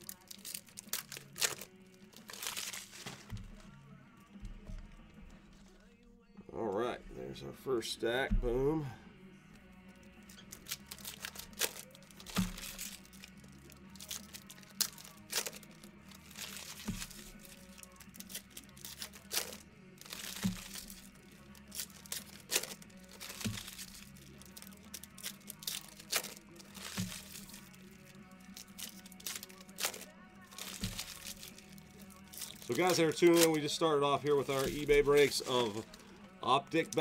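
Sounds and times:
card stock rustling: 0:00.0 - 0:03.7, 0:10.3 - 0:37.0
cards snapping onto piles: 0:14.0 - 0:21.1, 0:21.7 - 0:27.8, 0:28.5 - 0:33.7.

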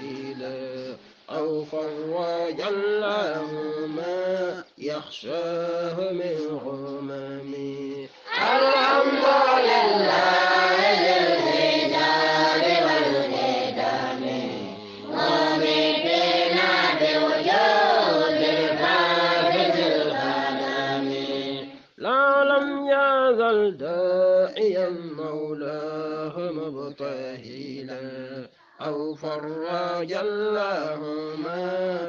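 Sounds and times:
single voice chanting: 0:00.0 - 0:01.5, 0:07.8 - 0:22.8, 0:28.6 - 0:30.2
group chanting in unison: 0:00.0 - 0:04.6, 0:06.4 - 0:21.9.

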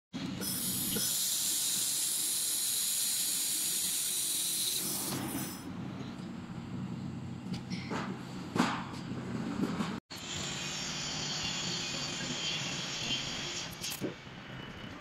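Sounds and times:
laser welding hiss: 0:00.4 - 0:05.6.

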